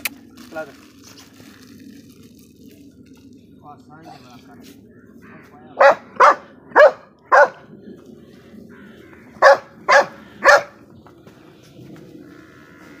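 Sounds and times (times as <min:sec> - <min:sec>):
dog barking: 0:05.8 - 0:07.6, 0:09.4 - 0:10.8.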